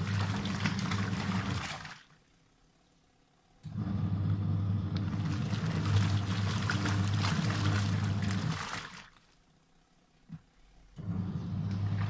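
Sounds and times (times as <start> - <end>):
washing machine motor humming: 0.0 - 2.2, 3.6 - 9.2, 10.3 - 12.0
water sloshing: 0.0 - 2.2, 5.1 - 9.4.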